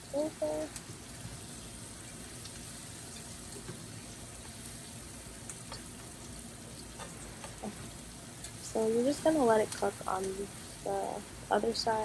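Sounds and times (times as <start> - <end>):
fish sizzling in hot oil: 0.0 - 12.0.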